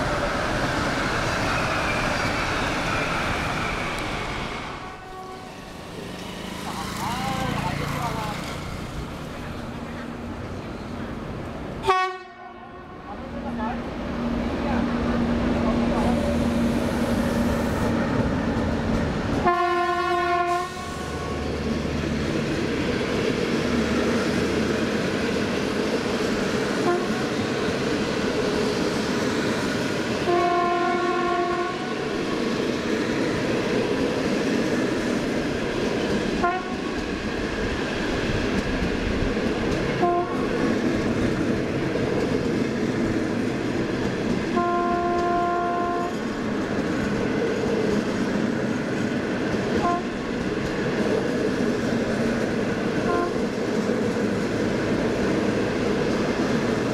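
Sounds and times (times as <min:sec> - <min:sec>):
train wheels rumbling on rails: 0:00.0 - 0:56.9
train horn blasts: 0:04.8 - 0:05.5, 0:11.8 - 0:13.0, 0:19.4 - 0:21.3, 0:26.8 - 0:27.3, 0:30.2 - 0:31.9, 0:36.4 - 0:36.9, 0:40.0 - 0:40.5, 0:44.5 - 0:46.2, 0:49.8 - 0:50.2, 0:53.0 - 0:53.4.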